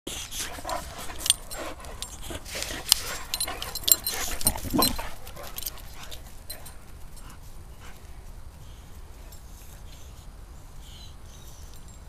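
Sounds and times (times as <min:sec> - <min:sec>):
low dog vocalisation: 0:00.1 - 0:06.2
collar fittings jingling: 0:00.1 - 0:07.5
dogs scuffling: 0:00.1 - 0:10.1.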